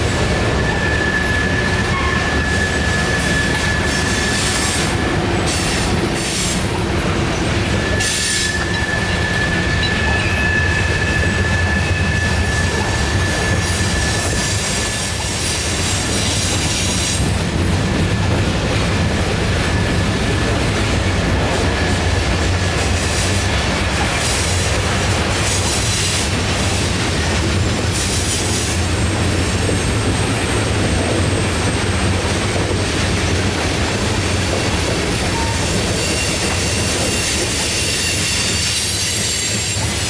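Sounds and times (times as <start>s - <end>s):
train wheels rumbling on rails: 0.0s - 40.0s
high wheel squeal: 0.3s - 6.8s, 7.5s - 17.2s, 34.1s - 40.0s.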